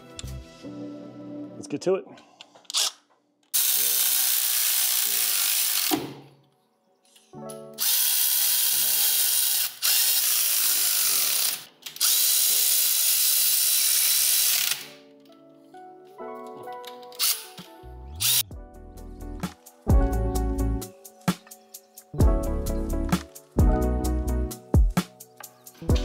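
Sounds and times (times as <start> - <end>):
electric ratchet running: 3.5 - 6.0, 7.8 - 14.9, 17.2 - 17.5, 18.2 - 18.4.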